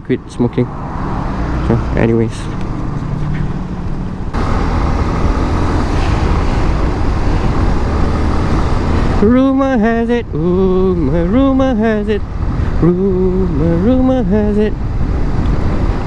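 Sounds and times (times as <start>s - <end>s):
motorcycle engine drone: 1.2s - 16.0s
wind rush on helmet mic: 2.5s - 9.3s, 10.1s - 16.0s
man humming: 9.0s - 14.8s.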